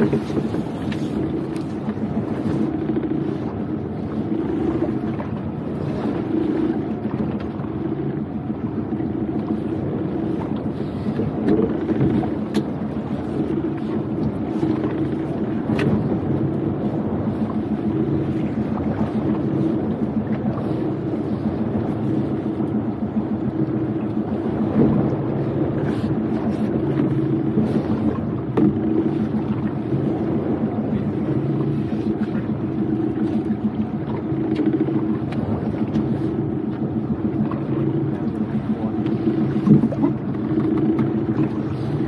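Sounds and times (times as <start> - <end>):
outboard motor running: 0.0 - 42.0.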